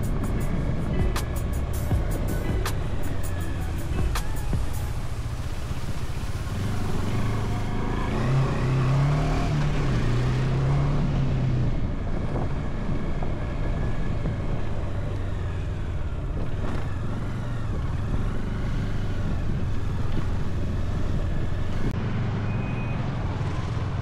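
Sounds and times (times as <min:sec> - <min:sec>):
motorcycle engine running: 0:00.0 - 0:05.8
road noise: 0:00.0 - 0:24.0
wind: 0:00.0 - 0:24.0.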